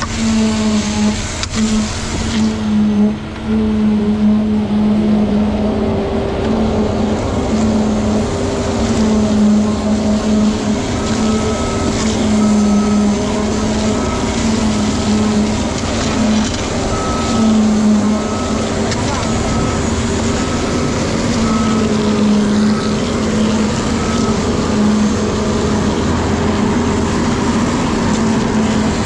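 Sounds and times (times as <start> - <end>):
concrete pump droning: 0.0 - 29.0
faint high beeps: 16.9 - 24.6.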